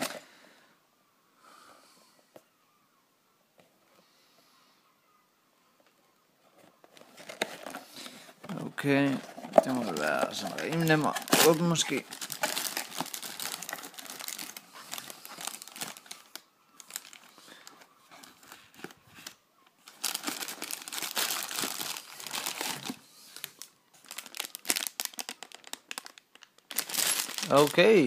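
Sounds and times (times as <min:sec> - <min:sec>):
plastic bag crinkling: 0:07.0 - 0:28.0.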